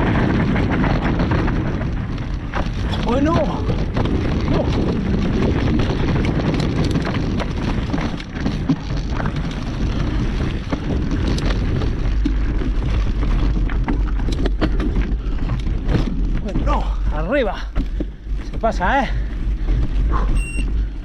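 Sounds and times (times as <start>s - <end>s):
wind buffeting microphone: 0.0s - 21.0s
sharp clicks and knocks: 0.4s - 16.7s.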